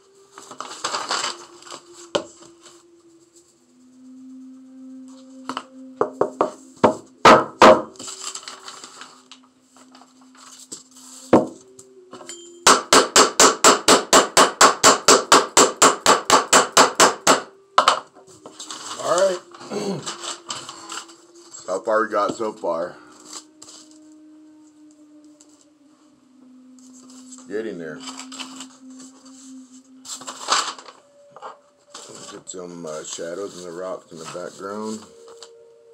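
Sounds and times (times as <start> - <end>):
paper rustling: 0.2 - 3.4, 8.0 - 11.6, 18.3 - 21.9, 26.8 - 35.6.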